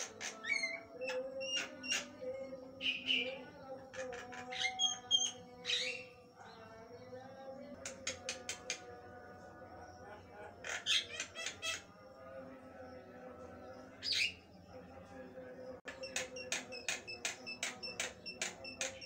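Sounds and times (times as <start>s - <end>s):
myna bird chattering: 10.5s - 11.9s.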